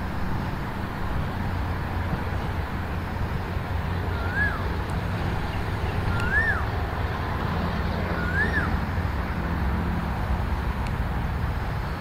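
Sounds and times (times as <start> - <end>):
bird whistling call: 4.1 - 4.7, 5.8 - 6.7, 8.1 - 8.8.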